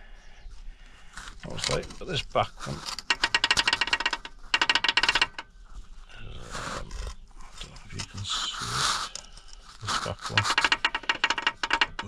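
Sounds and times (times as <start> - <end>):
soft rustling: 5.4 - 10.7.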